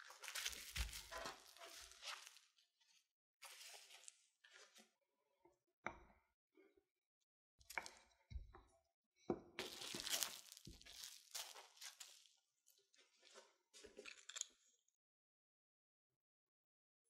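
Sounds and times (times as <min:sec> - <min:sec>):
cling film crinkling: 0:09.6 - 0:12.3.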